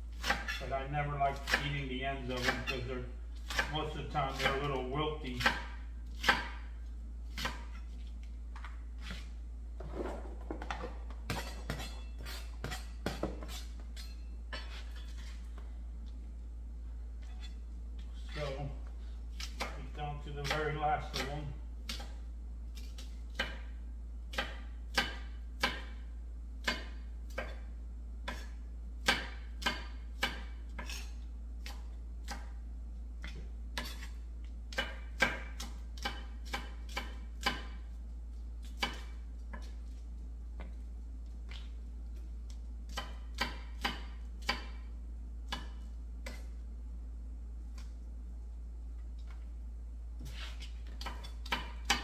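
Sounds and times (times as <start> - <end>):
steady low hum: 0.0 - 52.0
knife chopping on plastic board: 1.4 - 1.8, 3.4 - 4.8, 5.4 - 6.7, 7.3 - 7.8, 24.3 - 26.0, 26.6 - 27.6, 28.2 - 31.0, 34.7 - 37.8, 38.6 - 39.8, 42.9 - 44.8.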